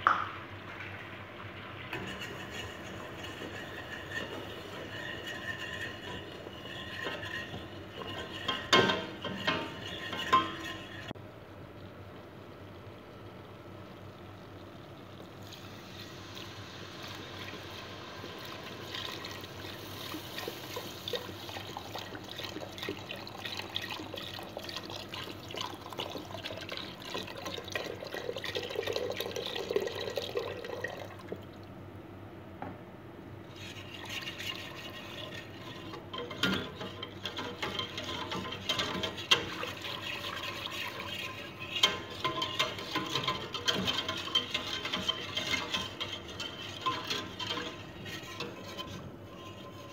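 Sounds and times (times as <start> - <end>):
whisk ticking against pan: 2.0 - 11.2, 34.0 - 49.9
milk pouring into saucepan: 14.1 - 31.6, 33.6 - 49.9.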